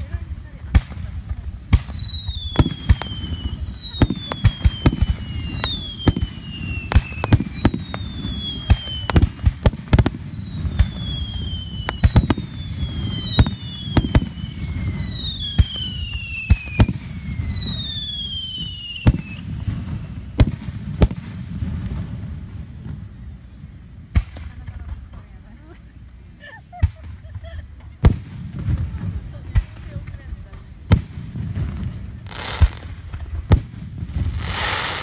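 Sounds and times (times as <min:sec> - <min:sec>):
fireworks bangs: 0:00.0 - 0:25.8, 0:26.6 - 0:35.0
fireworks whistles gliding down: 0:01.0 - 0:24.6, 0:30.6 - 0:35.0.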